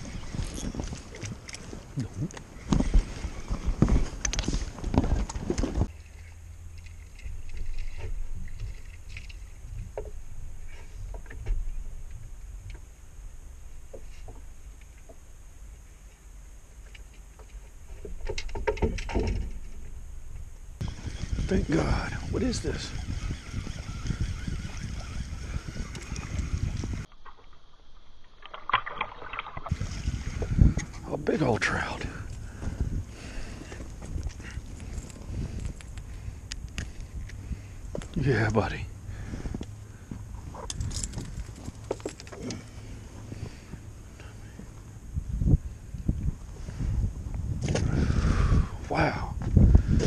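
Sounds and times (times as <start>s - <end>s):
water splashing and sloshing: 0.0s - 12.9s, 23.6s - 31.2s
wind rumble on microphone: 0.0s - 15.2s, 17.8s - 27.1s, 29.6s - 50.0s
fishing reel cranking: 20.8s - 27.1s.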